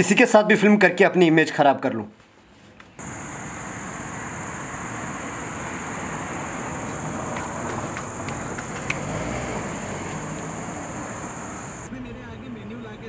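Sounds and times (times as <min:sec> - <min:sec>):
car road and wind noise: 0:03.0 - 0:11.9.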